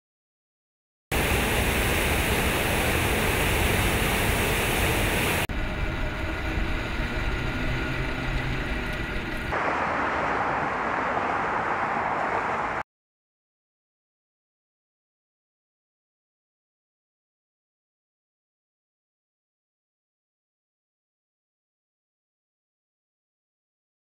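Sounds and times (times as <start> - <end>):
city street traffic roar: 1.1 - 12.8.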